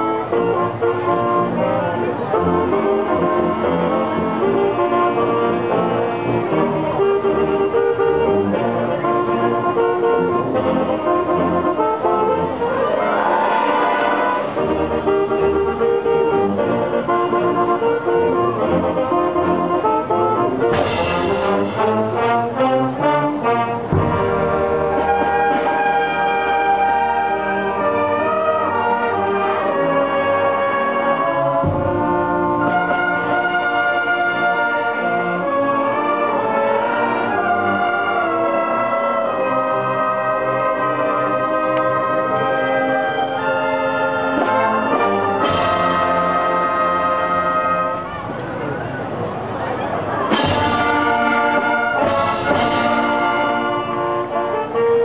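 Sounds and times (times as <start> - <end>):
brass band playing: 0.0 - 55.0.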